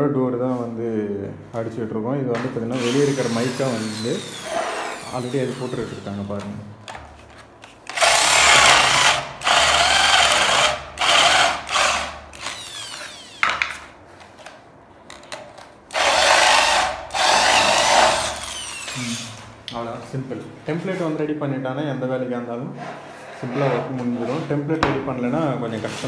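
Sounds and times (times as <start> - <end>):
electric drill whining: 2.8 - 6.5, 7.9 - 13.6, 15.9 - 19.4.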